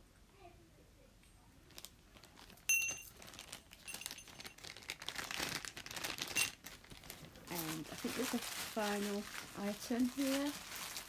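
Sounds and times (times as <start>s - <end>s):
packaging rustling: 1.7s - 11.0s
hand bell ringing: 2.7s - 3.1s.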